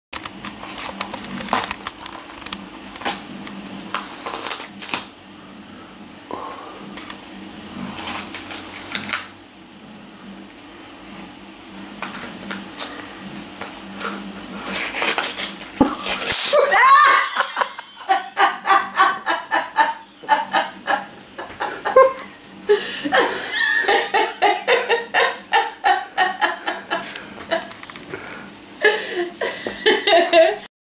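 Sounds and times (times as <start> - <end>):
paper wrapping crinkling: 0.2 - 5.1, 7.9 - 9.3, 11.8 - 16.6
person laughing: 15.8 - 30.7.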